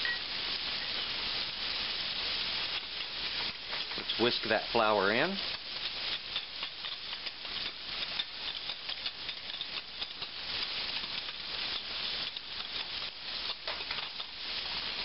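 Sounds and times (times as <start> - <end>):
light sizzle of frying fat: 0.0 - 15.0
whisk scraping a saucepan: 5.4 - 15.0.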